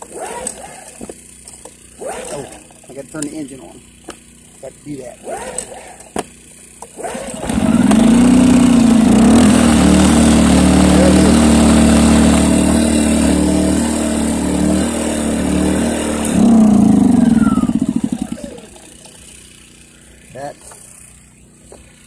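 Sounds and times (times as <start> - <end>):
generator engine running: 7.2 - 22.0.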